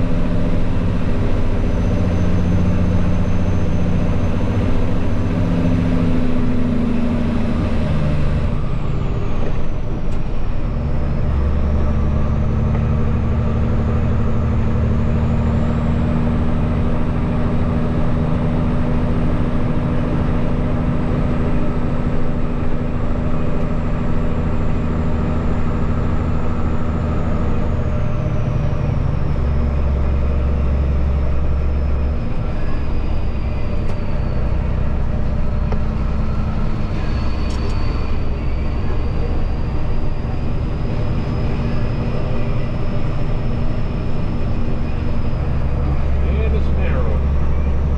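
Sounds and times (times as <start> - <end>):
truck diesel engine droning: 0.0 - 47.9.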